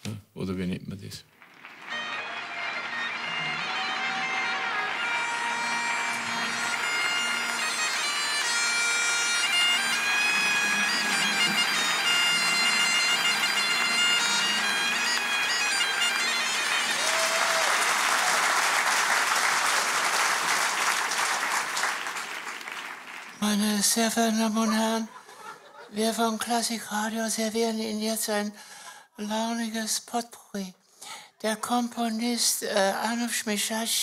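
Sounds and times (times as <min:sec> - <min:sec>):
audience applause: 0:01.3 - 0:23.5
bagpipes playing over drone: 0:01.9 - 0:17.3.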